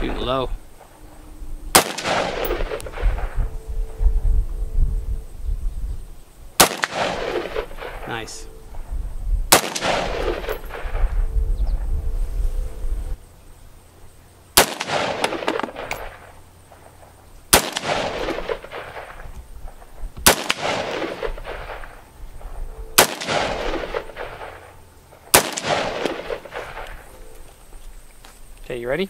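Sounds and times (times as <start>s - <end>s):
rifle shots with echo: 1.7s - 3.5s, 6.6s - 8.4s, 9.5s - 11.2s, 14.6s - 27.3s.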